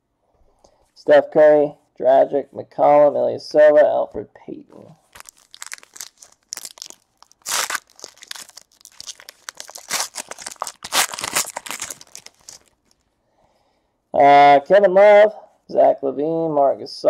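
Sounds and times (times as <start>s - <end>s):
foil wrapper crinkling and tearing: 5.0s - 13.0s.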